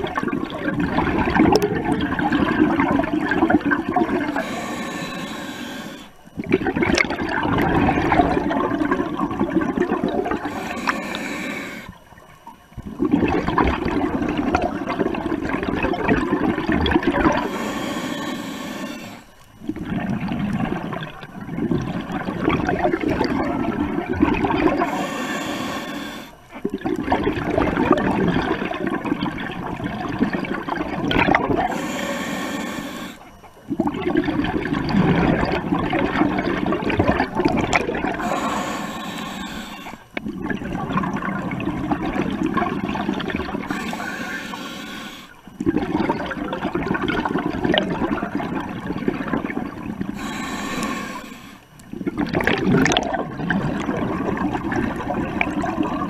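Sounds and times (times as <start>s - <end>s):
exhaled bubbles rushing: 0.0s - 4.5s, 6.3s - 10.8s, 11.8s - 17.5s, 19.1s - 25.1s, 26.5s - 31.8s, 33.6s - 38.6s, 39.8s - 44.2s, 45.4s - 50.9s, 51.9s - 56.0s
regulator inhale hiss: 4.1s - 6.3s, 10.4s - 12.0s, 17.3s - 19.5s, 24.7s - 26.5s, 31.6s - 33.3s, 38.1s - 40.2s, 43.5s - 45.5s, 50.1s - 51.8s.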